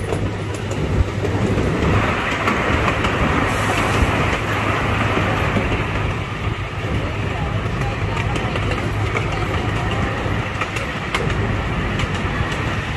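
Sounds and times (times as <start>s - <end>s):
miniature train rumbling: 0.0s - 12.9s
wheels clicking on rails: 0.0s - 12.9s
hiss: 3.3s - 5.4s.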